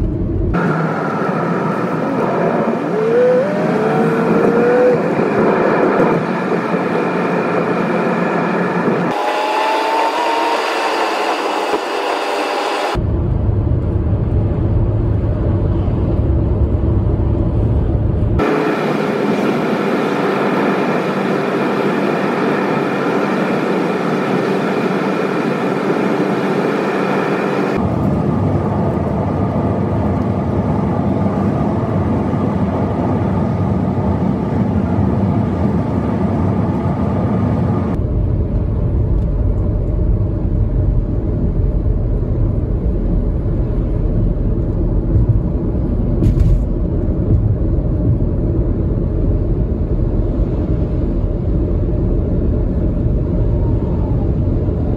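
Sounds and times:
car cabin road and engine noise: 0.0s - 54.9s.

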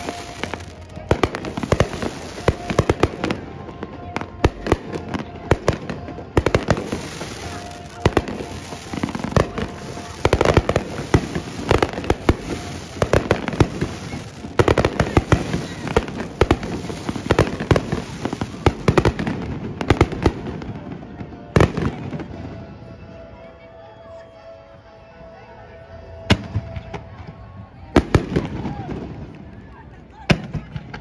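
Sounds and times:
fireworks bursting: 0.0s - 22.5s.

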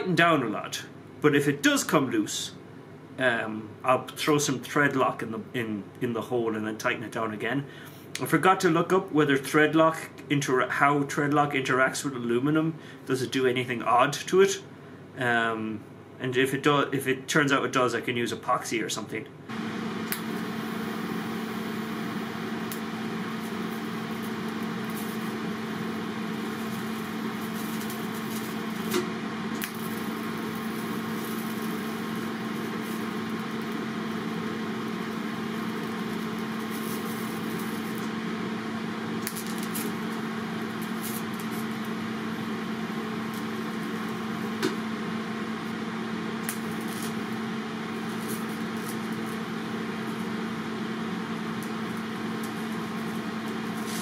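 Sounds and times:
welding arc buzzing hiss: 19.5s - 54.0s
sharp crackles: 20.0s - 38.2s, 39.2s - 44.8s, 46.4s - 47.4s.

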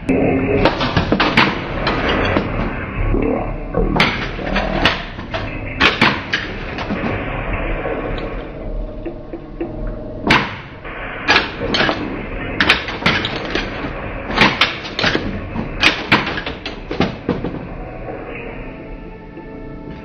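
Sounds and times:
pinball machine background hum: 0.0s - 20.0s
pinball machine clacks: 0.6s - 2.7s, 4.0s - 7.2s, 9.0s - 17.7s.

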